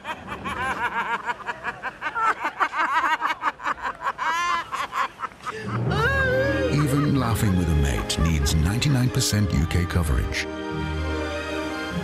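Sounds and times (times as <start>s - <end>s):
women laughing: 0.0s - 8.0s.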